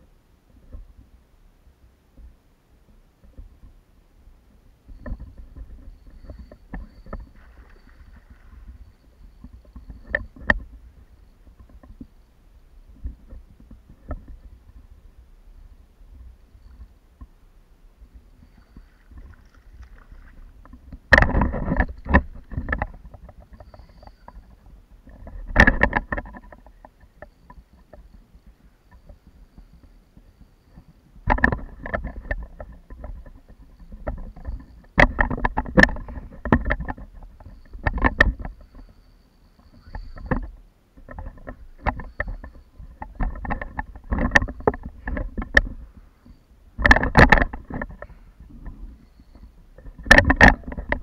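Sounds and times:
rattling knocks on a kayak: 0:18.2 - 0:24.4, 0:25.1 - 0:27.9, 0:30.8 - 0:39.0, 0:39.8 - 0:48.8, 0:49.8 - 0:51.0.

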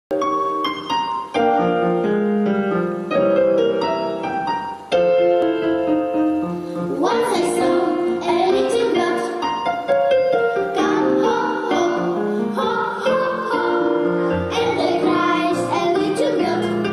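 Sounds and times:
piano chords and runs: 0:00.1 - 0:16.9
girls singing: 0:07.0 - 0:09.6, 0:10.7 - 0:16.9.

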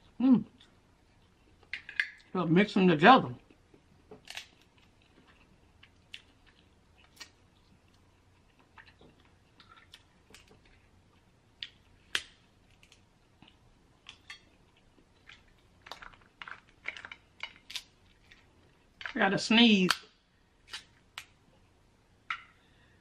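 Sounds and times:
crab shells cracking: 0:04.2 - 0:07.4, 0:11.6 - 0:13.1, 0:15.1 - 0:19.2.

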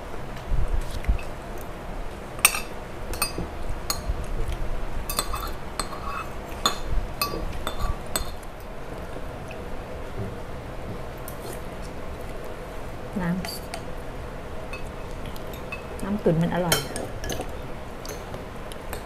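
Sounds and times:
cutlery clinking against dishes: 0:02.4 - 0:04.0, 0:05.1 - 0:08.4, 0:16.7 - 0:18.3.

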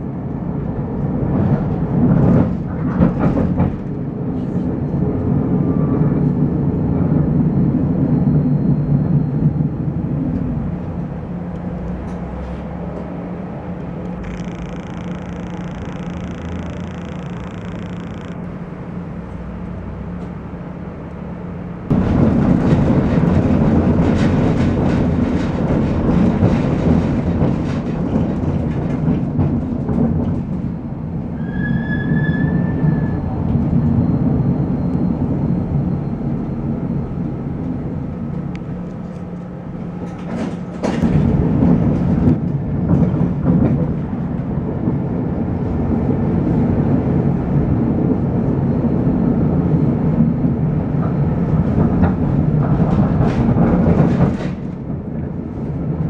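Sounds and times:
tram hum: 0:00.0 - 0:56.0
tram rolling rumble: 0:00.0 - 0:56.0
wheel squeal: 0:14.2 - 0:18.4, 0:31.4 - 0:36.1.

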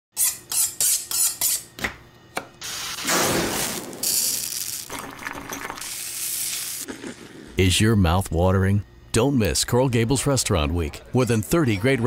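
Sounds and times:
knife on honing steel: 0:00.2 - 0:01.8.

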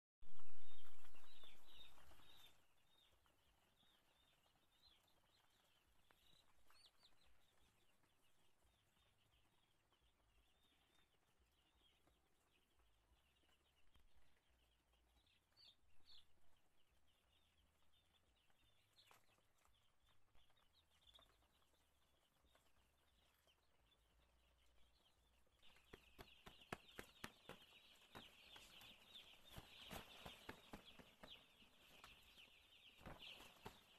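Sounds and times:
chicks peeping: 0:00.3 - 0:33.9.

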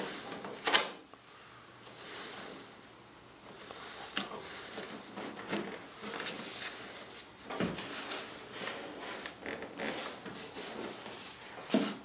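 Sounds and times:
tape crinkling and rubbing: 0:03.4 - 0:11.4.

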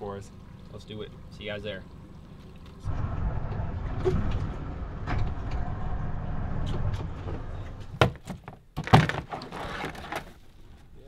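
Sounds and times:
low rumble: 0:02.8 - 0:08.0.

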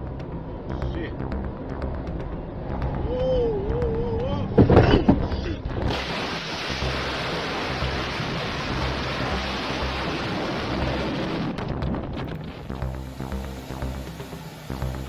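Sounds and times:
storm wind: 0:00.0 - 0:14.7
heavy rain beating on vehicle: 0:05.9 - 0:11.7.

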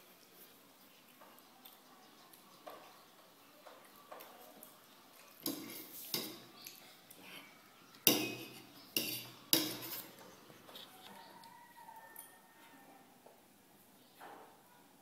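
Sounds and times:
fork clinking and scraping on plate: 0:05.4 - 0:06.8, 0:08.0 - 0:10.9.

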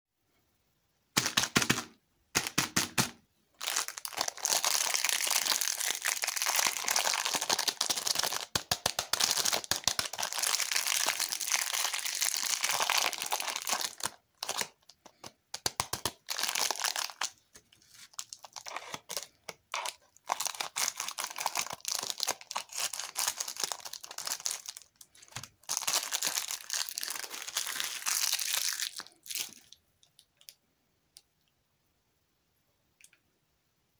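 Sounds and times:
plastic wrapper crinkling and tearing: 0:03.6 - 0:30.5.

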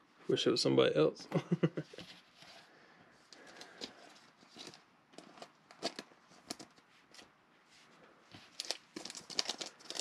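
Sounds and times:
trading cards rustling: 0:03.3 - 0:07.3, 0:08.4 - 0:10.0.

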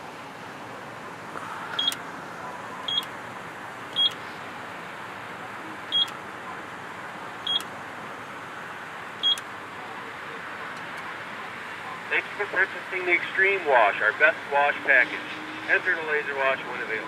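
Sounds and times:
steady background noise: 0:00.0 - 0:17.0
keypad beeping: 0:01.8 - 0:02.0, 0:02.9 - 0:03.1, 0:03.9 - 0:04.2, 0:05.9 - 0:06.2, 0:07.4 - 0:07.7, 0:09.2 - 0:09.4.

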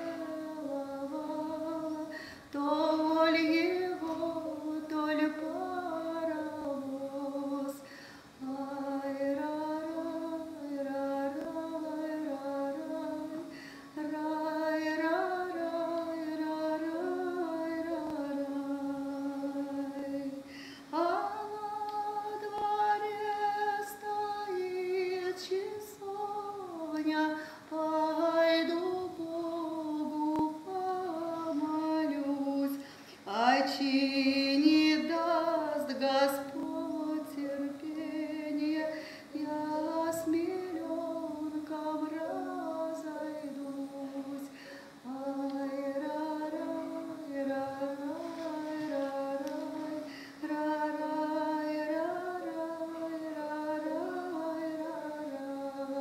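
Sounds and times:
woman singing: 0:00.0 - 0:56.0.

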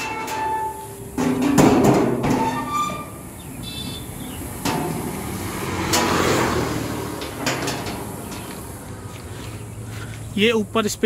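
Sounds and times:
rattling ringing metal: 0:00.0 - 0:03.4, 0:04.6 - 0:08.8
metal cargo doors clanking shut: 0:00.0 - 0:08.9.

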